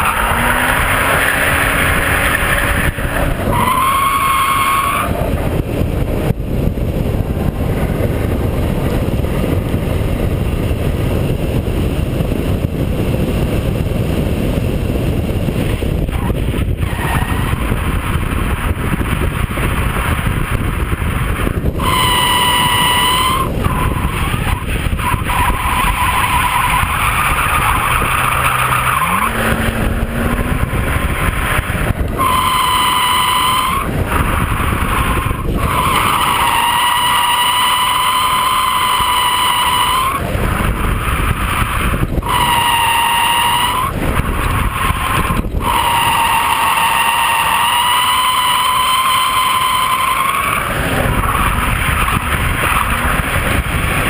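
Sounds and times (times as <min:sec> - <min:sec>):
car engine running hard: 0:00.0 - 0:54.0
wind noise on microphone: 0:00.0 - 0:54.0
tyres squealing: 0:32.0 - 0:40.2, 0:44.5 - 0:53.0.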